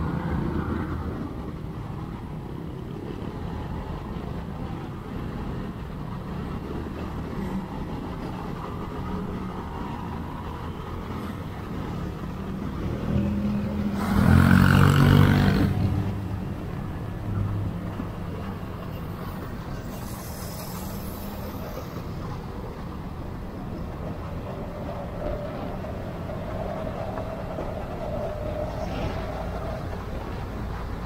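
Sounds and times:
scooter engine and road hum: 11.4 - 18.9
loud vehicle passing: 12.9 - 16.3.

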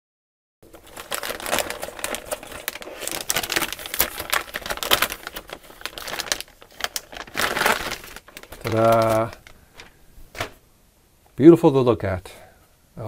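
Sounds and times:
plastic bag crinkling: 0.6 - 10.6.

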